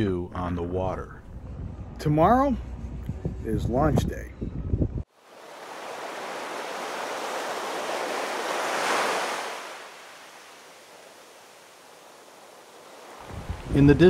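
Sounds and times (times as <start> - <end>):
rush of surf-like noise: 5.2 - 14.0.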